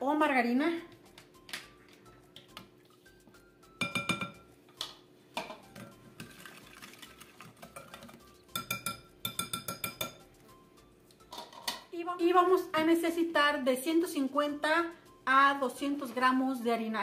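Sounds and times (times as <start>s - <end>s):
whisk clinking against glass bowl: 3.8s - 4.5s, 7.6s - 10.3s.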